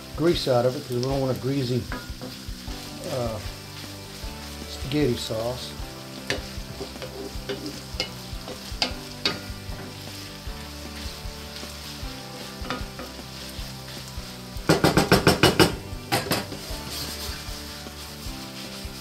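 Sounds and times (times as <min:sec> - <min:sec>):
meat sizzling in a skillet: 0:00.0 - 0:19.0
wooden spoon stirring and scraping: 0:00.2 - 0:19.0
wooden spoon knocking against pan: 0:14.7 - 0:16.6.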